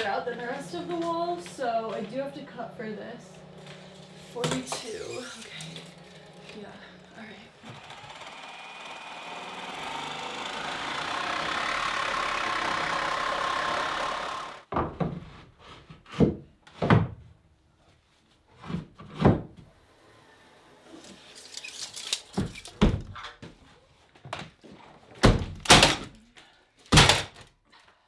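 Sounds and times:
power saw cutting board: 7.6 - 14.7.

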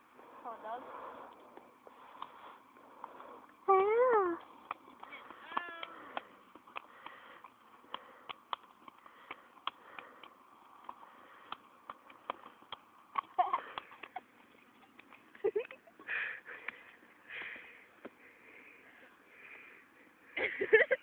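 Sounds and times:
hands slapping bodies and clothing: 4.4 - 15.8
person giggling: 13.3 - 14.3, 15.4 - 16.2, 20.4 - 21.0.

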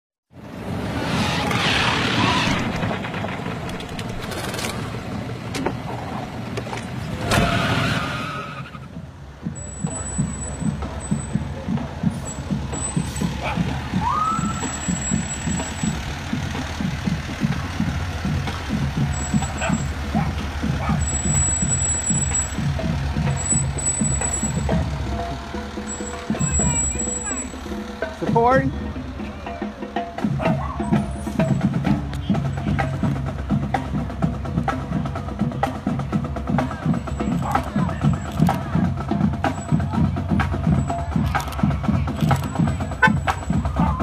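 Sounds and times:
rushing noise: 0.4 - 29.3
vehicle engine idling: 2.2 - 44.0.

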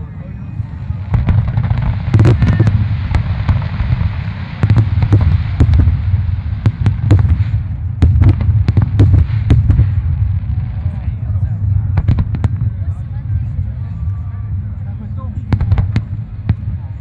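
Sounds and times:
fireworks booming: 0.6 - 13.6, 15.4 - 17.0
sharp firework cracks: 1.1 - 10.9.

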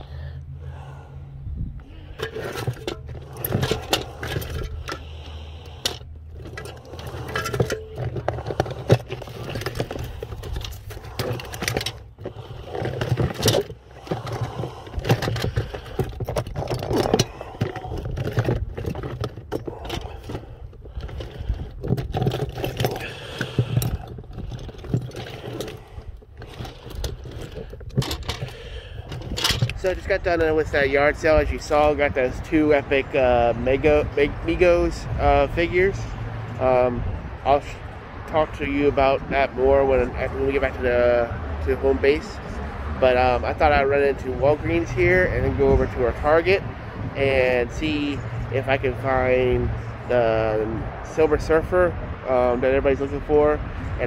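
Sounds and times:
low rumble: 0.0 - 29.9
plastic toys scraping and clicking: 2.0 - 32.4.

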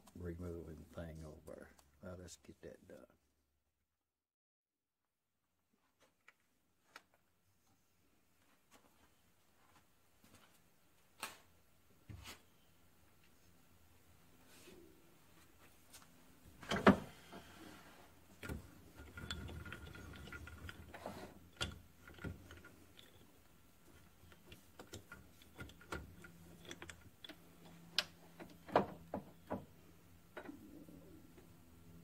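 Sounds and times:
metal clicks and clanks: 18.4 - 28.9.

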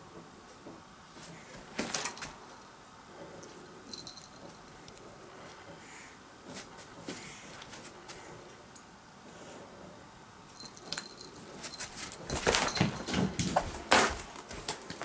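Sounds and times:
knocks rustles and clatter: 10.8 - 15.0.

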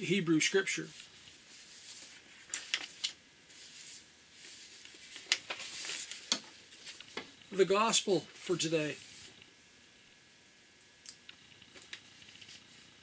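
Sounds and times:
paper rustle: 0.8 - 7.3, 11.7 - 12.9.

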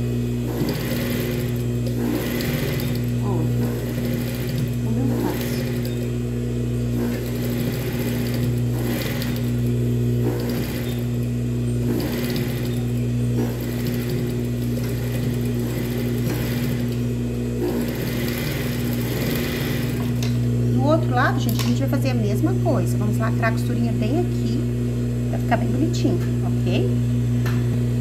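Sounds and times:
electric motor hum: 0.0 - 28.0
sewing machine stitching: 0.5 - 6.1, 6.9 - 11.2, 11.8 - 17.0, 17.6 - 20.3.

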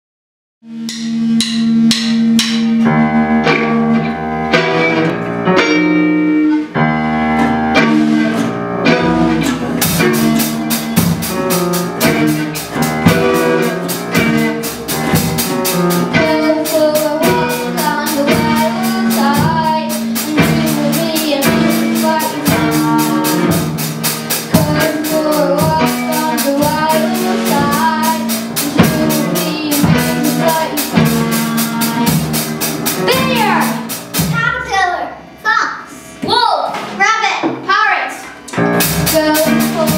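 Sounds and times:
drum kit beat: 0.6 - 39.9
guitars strumming: 0.7 - 39.9
girl singing: 16.0 - 32.4, 33.0 - 33.9, 38.9 - 39.9.

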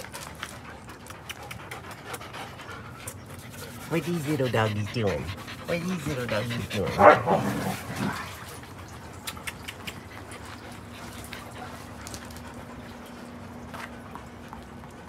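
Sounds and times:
dogs scuffling on a mat: 0.0 - 9.1, 9.8 - 15.0.

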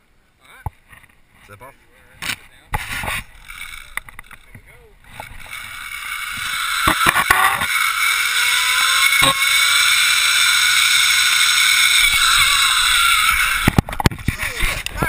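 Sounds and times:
zip line pulleys whirring: 3.3 - 4.4, 5.0 - 14.9
sharp clicks: 12.0 - 15.0.

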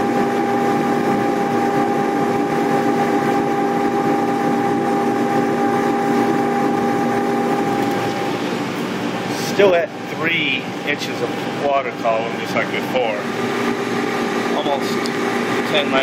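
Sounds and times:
boiler blower and burner hum: 0.0 - 16.0.

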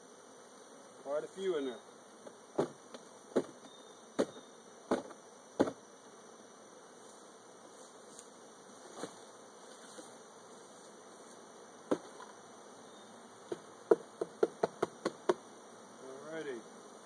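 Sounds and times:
bee swarm buzzing: 0.0 - 17.0
knocks on cardboard box: 2.6 - 5.8, 11.9 - 12.2, 13.5 - 15.4.

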